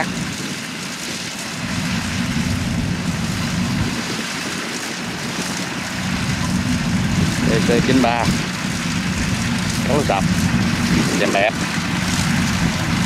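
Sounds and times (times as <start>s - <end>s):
combine harvester engine drone: 0.0s - 13.0s.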